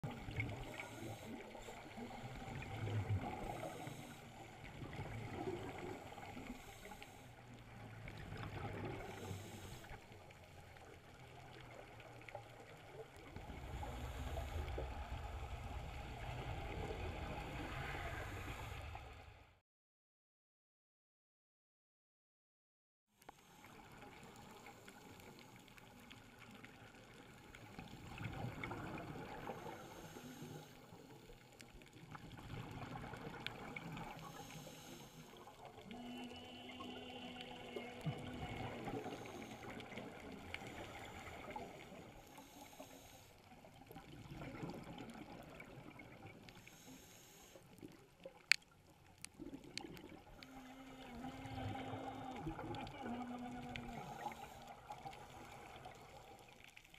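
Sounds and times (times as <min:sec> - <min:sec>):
underwater regulator bubbles: 0:32.0 - 0:43.1, 0:47.8 - 0:56.7.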